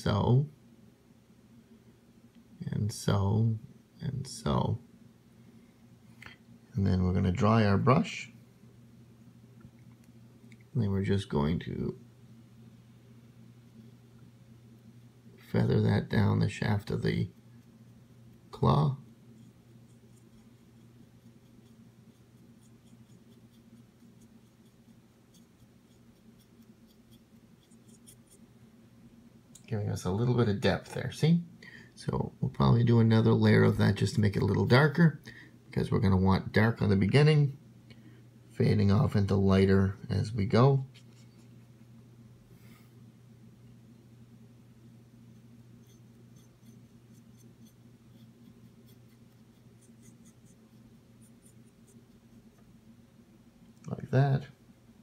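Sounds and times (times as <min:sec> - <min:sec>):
low steady hum: 0:00.0 - 0:55.0
paintbrush scratchy ticks: 0:16.9 - 0:28.4, 0:45.3 - 0:52.7.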